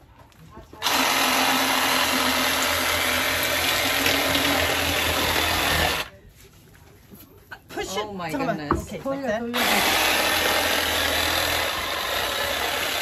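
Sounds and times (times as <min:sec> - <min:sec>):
cordless saw cutting fish: 0:00.8 - 0:06.1, 0:09.6 - 0:13.0.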